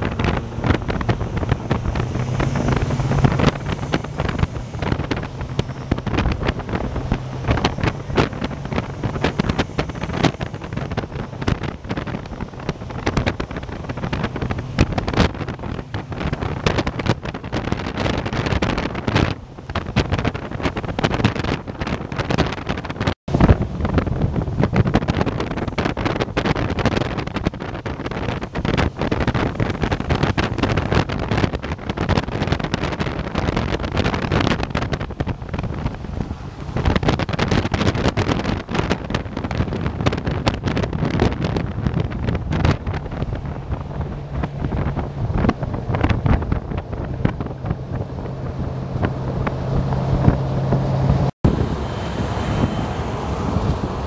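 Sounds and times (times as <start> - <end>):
engine and road noise: 0.0 - 54.0
wind buffeting microphone: 0.0 - 54.0
steady low hum: 42.8 - 54.0.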